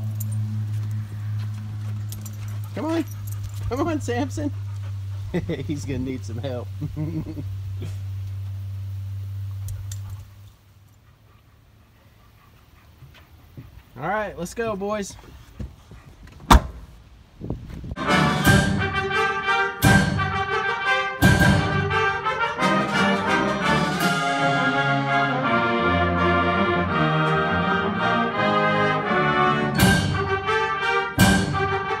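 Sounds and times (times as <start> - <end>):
car door shutting: 16.3 - 17.0
orchestral music with brass: 18.0 - 32.0.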